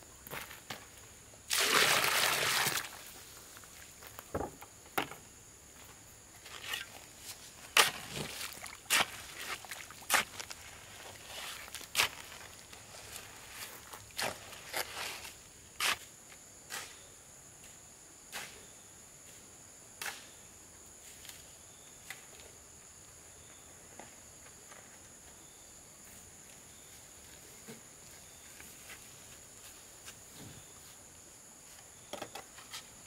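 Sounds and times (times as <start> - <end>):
hoe scraping wet mortar: 7.6 - 12.4.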